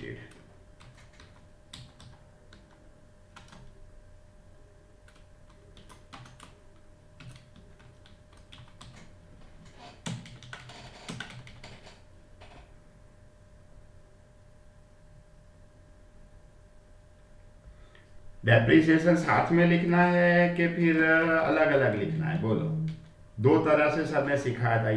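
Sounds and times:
keyboard typing clicks: 0:00.3 - 0:03.8, 0:05.0 - 0:06.6, 0:07.2 - 0:09.1, 0:10.0 - 0:11.8.

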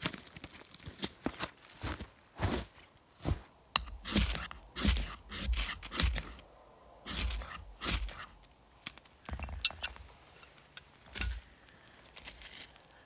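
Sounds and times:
scraping strokes on wood shavings: 0:03.8 - 0:06.4, 0:07.0 - 0:08.5.

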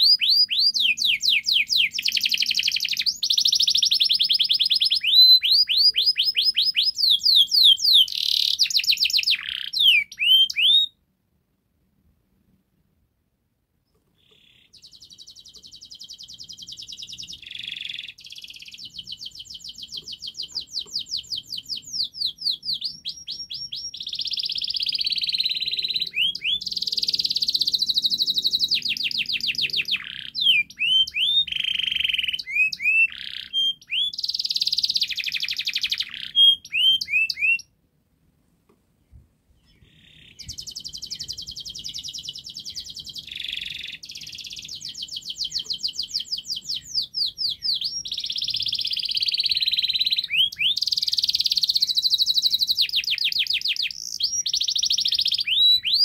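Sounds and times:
canary singing trills: 0:00.0 - 0:11.0, 0:13.9 - 0:37.7, 0:39.6 - 0:56.0.

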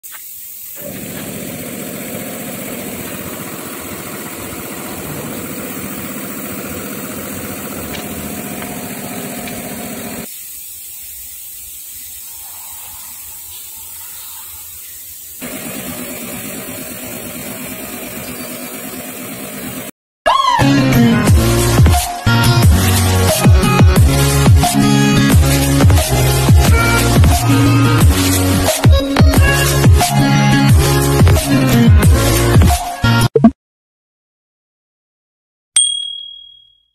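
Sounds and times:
machine motor drone: 0:00.8 - 0:10.3, 0:15.4 - 0:19.9.

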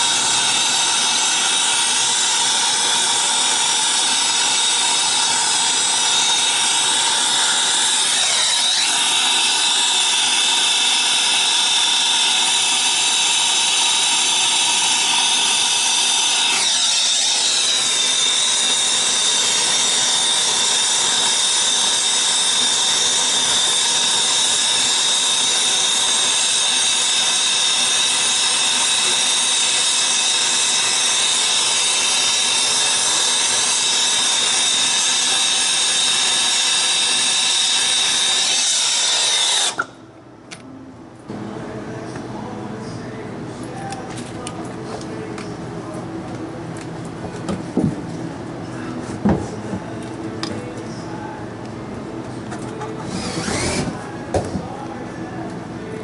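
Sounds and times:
torch flame hissing: 0:00.0 - 0:22.6
constant high whine: 0:00.0 - 0:56.0.

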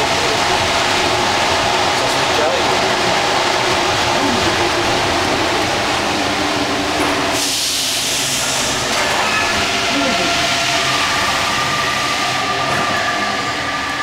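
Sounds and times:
train rumble: 0:00.0 - 0:14.0
burst of hiss: 0:07.3 - 0:08.8.

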